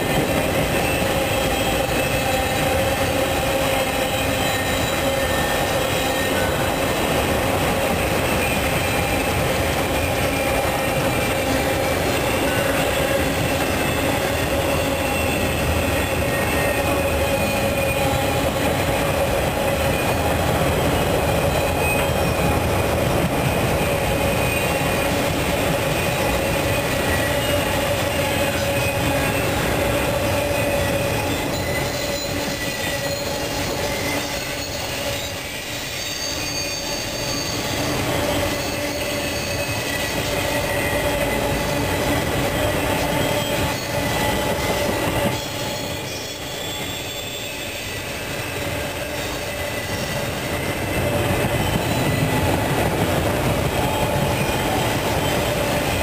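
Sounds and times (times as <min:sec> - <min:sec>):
high wheel squeal: 0:00.0 - 0:56.0
train wheels rumbling on rails: 0:00.0 - 0:56.0.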